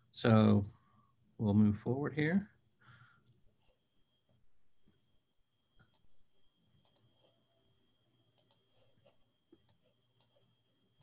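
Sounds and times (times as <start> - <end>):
computer mouse clicks: 5.3 - 6.1, 6.8 - 7.3, 8.4 - 8.8, 9.5 - 10.4.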